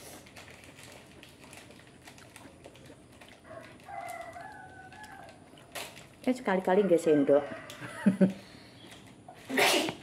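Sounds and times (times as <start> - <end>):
chewing: 0.0 - 6.4.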